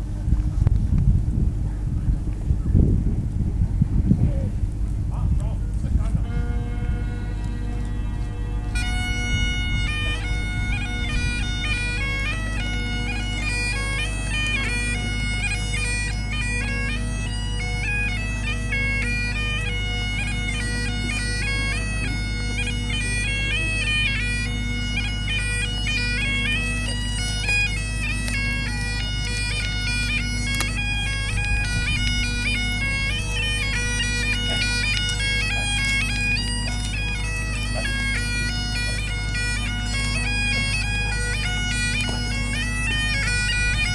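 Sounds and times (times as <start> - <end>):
wind rumbling on microphone: 0.0 - 13.3, 30.4 - 37.0, 42.0 - 43.9
bagpipe melody over drones: 5.6 - 43.9.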